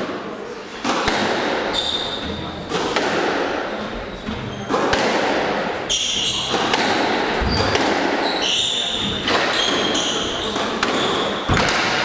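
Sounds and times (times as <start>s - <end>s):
squash ball cracks: 0.8s - 1.7s, 2.7s - 3.6s, 4.7s - 5.6s, 6.5s - 8.2s, 9.2s - 12.0s
shoes squeaking on wooden floor: 1.7s - 2.6s, 5.8s - 6.7s, 7.4s - 11.6s.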